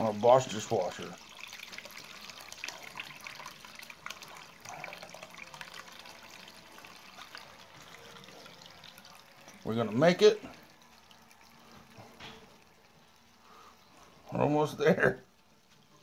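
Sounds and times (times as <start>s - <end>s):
water trickling into plastic bag: 0.0s - 16.0s.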